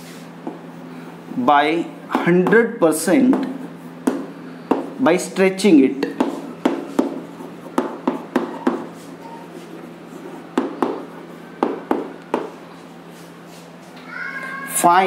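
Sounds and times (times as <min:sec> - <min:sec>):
chalk tapping on chalkboard: 0:02.1 - 0:02.6, 0:03.2 - 0:05.0, 0:06.0 - 0:12.6.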